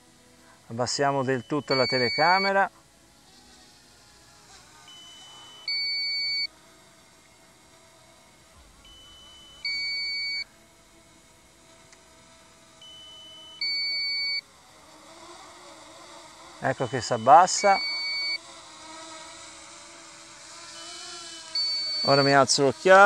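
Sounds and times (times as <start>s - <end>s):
remote control warning beeps: 1.2s - 2.6s, 4.9s - 6.5s, 8.8s - 10.5s, 12.8s - 14.5s, 16.8s - 18.4s, 21.6s - 22.4s.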